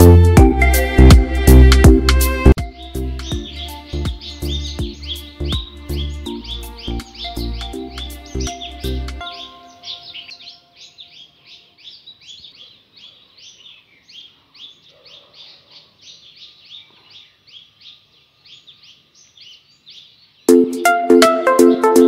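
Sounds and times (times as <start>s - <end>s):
background music: 0.0s - 10.4s, 20.5s - 22.0s
bird chirping: 2.5s - 22.0s.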